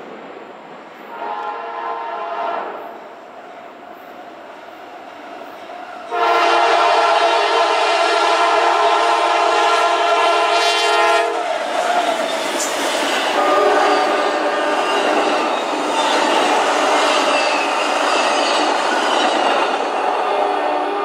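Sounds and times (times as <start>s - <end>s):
train wheels on rails: 0.0s - 21.0s
locomotive air horn: 1.1s - 2.9s, 6.1s - 11.4s, 13.3s - 14.6s, 20.0s - 21.0s.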